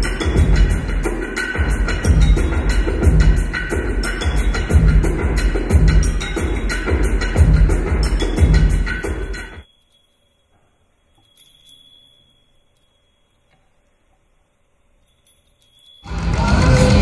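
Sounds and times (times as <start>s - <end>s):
loud electronic music: 0.0s - 9.6s, 16.1s - 17.0s
high chime-like ringing tones: 8.0s - 16.9s.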